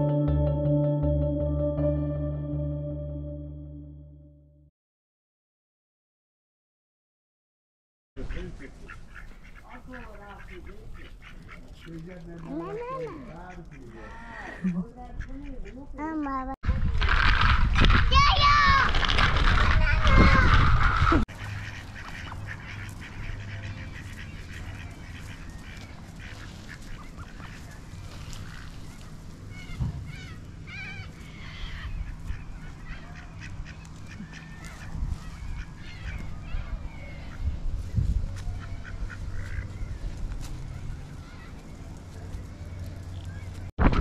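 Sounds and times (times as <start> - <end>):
ducks quacking: 8.2 - 16.0, 20.9 - 43.6.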